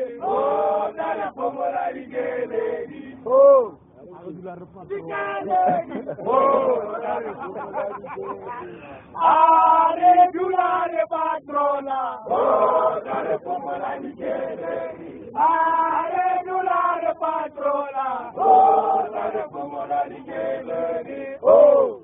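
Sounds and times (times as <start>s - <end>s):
men chanting and singing: 0.0s - 22.0s.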